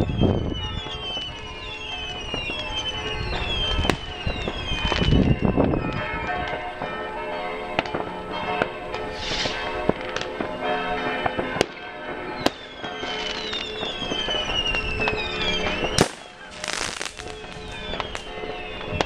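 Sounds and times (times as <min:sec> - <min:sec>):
firework whistles falling in pitch: 0:00.0 - 0:05.8, 0:09.1 - 0:09.6, 0:12.4 - 0:19.0
fireworks crackling: 0:00.0 - 0:07.0, 0:07.8 - 0:19.0
firecracker bangs: 0:09.1 - 0:10.6, 0:12.4 - 0:18.3.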